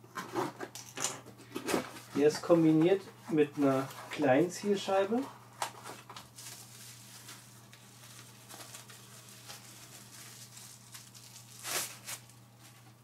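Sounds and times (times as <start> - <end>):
bubble wrap rustling and crinkling: 4.9 - 13.0
plastic tearing: 5.6 - 12.8.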